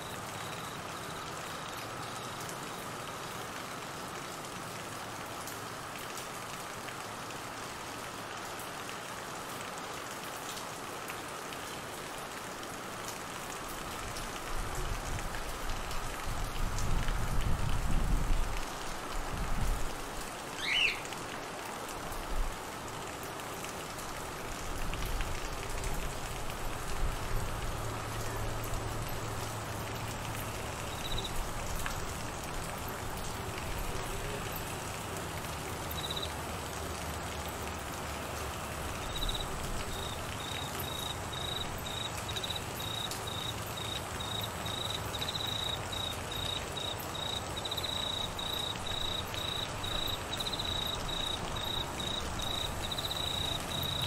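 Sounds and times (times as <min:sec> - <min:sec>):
rain on trees and grass: 0:00.0 - 0:54.0
cricket chirping: 0:30.9 - 0:31.3, 0:39.1 - 0:54.0.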